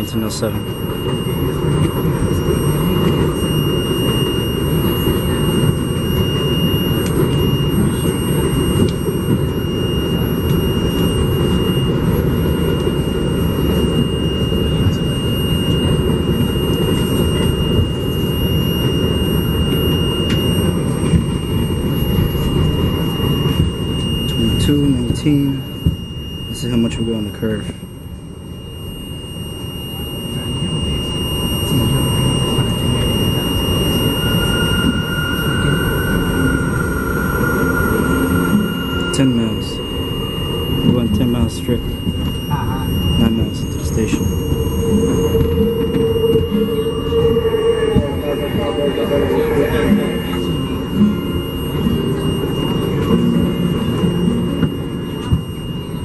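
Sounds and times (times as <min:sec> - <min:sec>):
high-pitched alarm tone: 0:00.0 - 0:56.0
subway car rumbling on track: 0:00.0 - 0:56.0
wheel squeal: 0:28.9 - 0:56.0.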